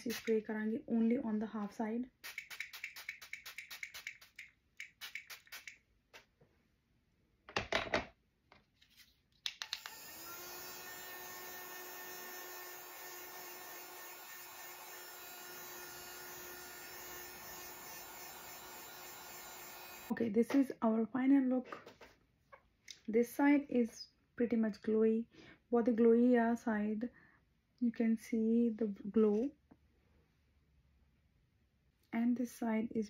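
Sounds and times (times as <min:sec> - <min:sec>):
spray bottle hissing: 0:02.2 - 0:05.8
handheld fan motor whine: 0:09.8 - 0:20.1.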